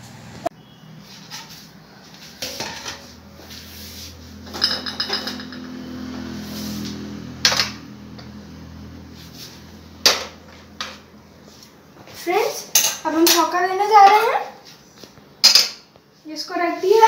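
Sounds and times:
metal utensils clinking: 2.2 - 3.2, 4.4 - 6.0, 12.7 - 14.3.

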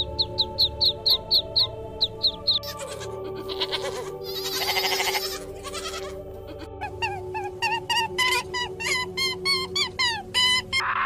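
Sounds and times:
goats bleating: 2.6 - 6.7.

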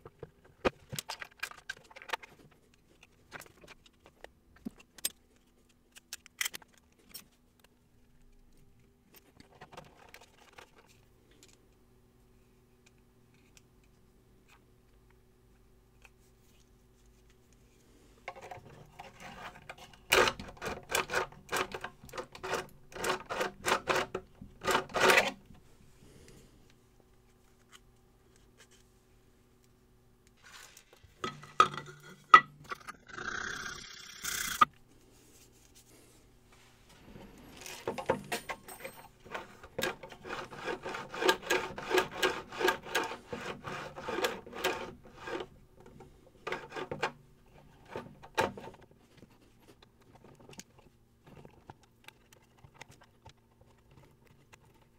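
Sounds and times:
clicks and handling of parts: 0.0 - 11.9, 12.6 - 25.6, 26.3 - 28.9, 29.6 - 33.0, 36.5 - 54.9
sanding plastic on sandpaper: 40.2 - 45.4.

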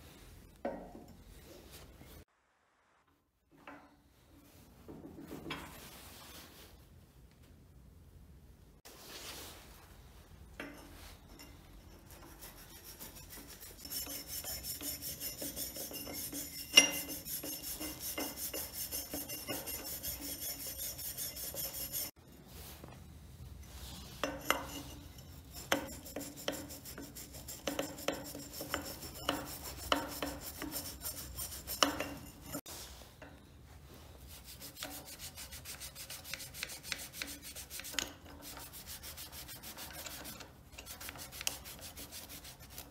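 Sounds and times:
wire brush scrubbing metal: 10.6 - 22.7, 23.8 - 33.4, 34.0 - 42.9.

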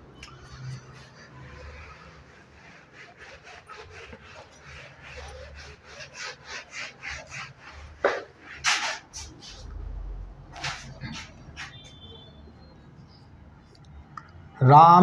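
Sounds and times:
whiteboard being wiped: 0.4 - 12.2.

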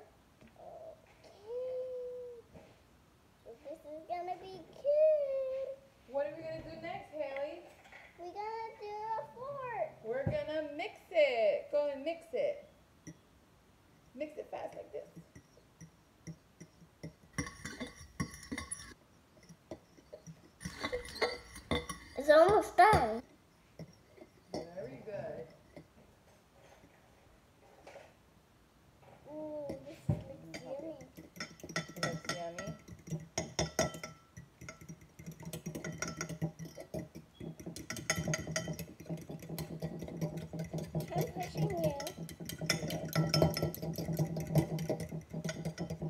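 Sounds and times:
fork clinking against a bowl: 15.2 - 22.7, 30.5 - 46.0.

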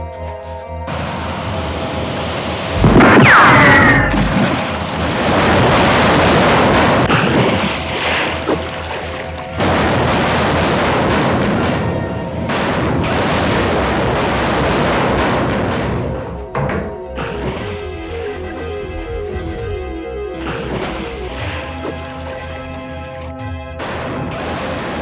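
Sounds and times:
dramatic background music: 0.0 - 25.0
heavy booming noise: 1.0 - 8.5, 9.5 - 22.8.

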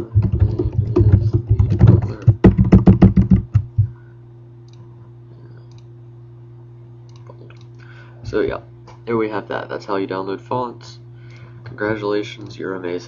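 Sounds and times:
typing on computer keyboard: 0.0 - 3.8
low steady hum: 0.0 - 13.0.

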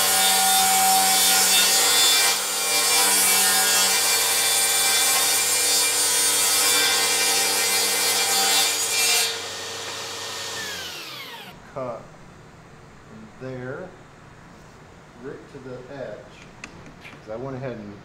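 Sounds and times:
table saw cutting wood: 0.0 - 11.6.

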